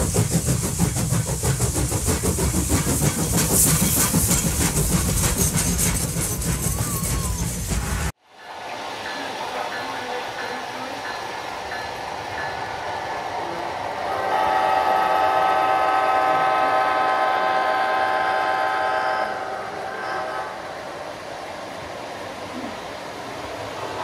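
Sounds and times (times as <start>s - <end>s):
model train rolling: 0.0s - 24.0s
model train horn blast: 14.1s - 20.9s.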